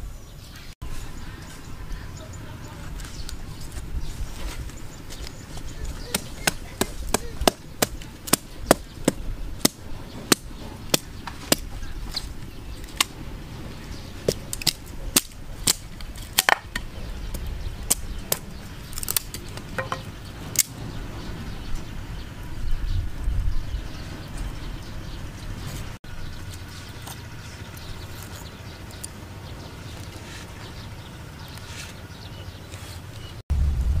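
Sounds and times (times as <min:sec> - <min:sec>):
hatchet chopping wood: 0:06.0 - 0:11.7, 0:14.2 - 0:16.9, 0:17.9 - 0:20.7.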